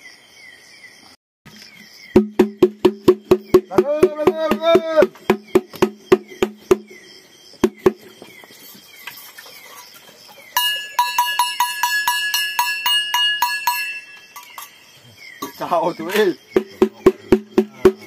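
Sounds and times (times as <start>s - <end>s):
ringing metallic clanking: 10.6s - 14.8s.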